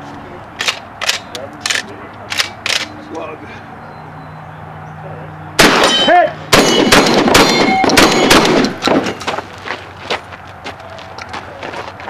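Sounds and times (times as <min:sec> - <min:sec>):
shotgun shots: 0:05.6 - 0:09.2
steel targets ringing: 0:05.6 - 0:09.2.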